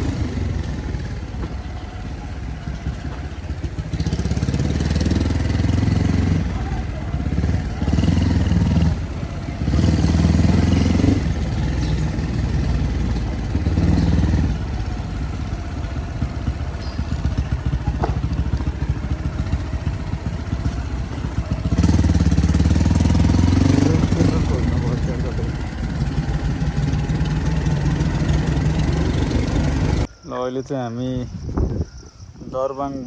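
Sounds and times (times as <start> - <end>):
motorcycle engine revving: 0.0 - 30.1.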